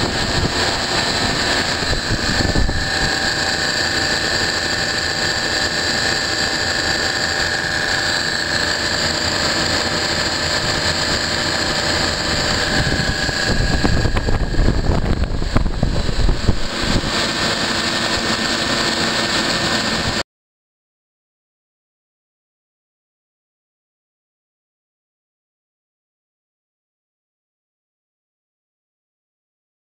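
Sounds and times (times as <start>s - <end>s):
refrigeration compressors humming: 0.0s - 20.2s
low rumble: 11.0s - 17.4s.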